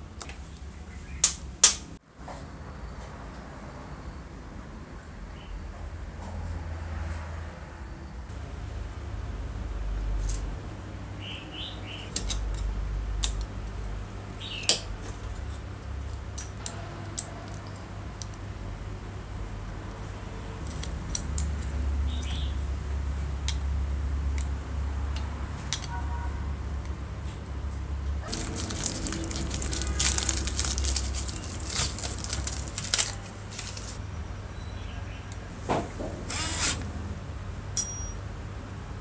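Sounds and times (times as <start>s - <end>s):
high metallic ping: 37.8s - 38.2s.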